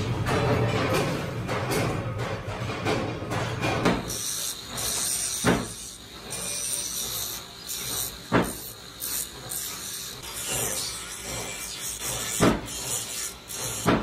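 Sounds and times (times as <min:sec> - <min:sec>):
angle grinder grinding steel: 0:04.0 - 0:14.0.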